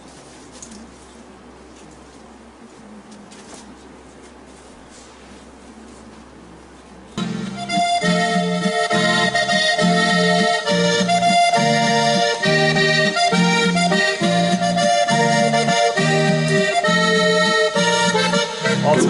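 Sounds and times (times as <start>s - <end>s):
accordion music with bass beat: 7.2s - 19.0s.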